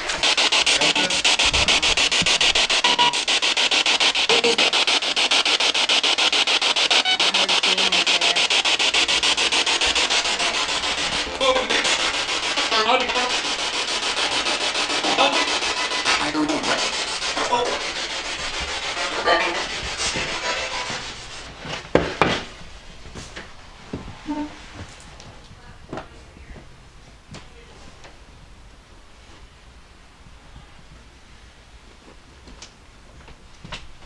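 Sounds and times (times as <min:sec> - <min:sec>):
snippets of radio sound: 0:00.0 - 0:21.3
choppy radio static: 0:00.0 - 0:21.5.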